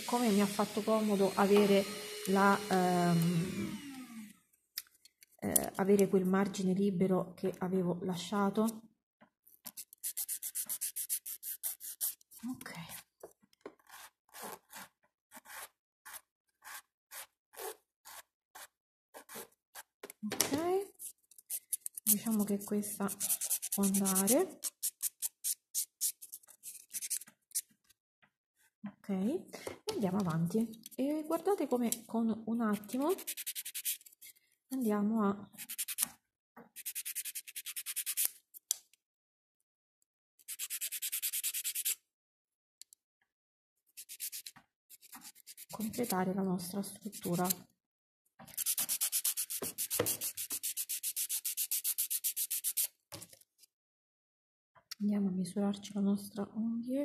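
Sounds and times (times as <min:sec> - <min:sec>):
nail file rasping: 0:09.7 - 0:12.3, 0:21.0 - 0:27.6, 0:32.8 - 0:34.2, 0:35.6 - 0:36.1, 0:36.8 - 0:38.4, 0:40.4 - 0:42.0, 0:44.0 - 0:46.2, 0:48.5 - 0:52.9.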